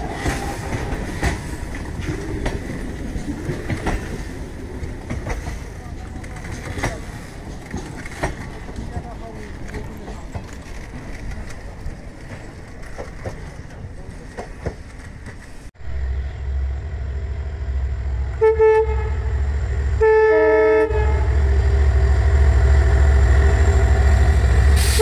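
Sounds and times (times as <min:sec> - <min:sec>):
diesel locomotive engine rumble: 0:00.0 - 0:25.0
locomotive horn blasts: 0:18.3 - 0:21.6.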